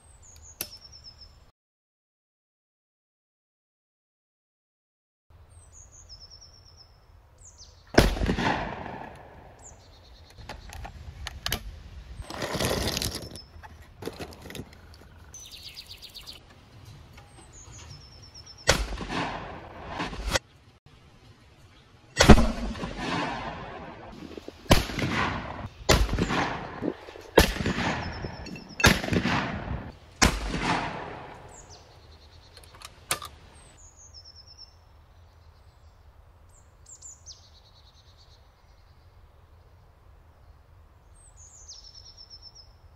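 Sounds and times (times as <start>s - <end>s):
birds chirping: 0.0s - 1.5s, 5.4s - 8.0s, 9.1s - 11.0s, 12.1s - 18.8s, 26.2s - 29.2s, 31.1s - 42.8s
shotgun shots: 7.9s - 9.6s, 18.7s - 20.4s, 22.2s - 31.8s.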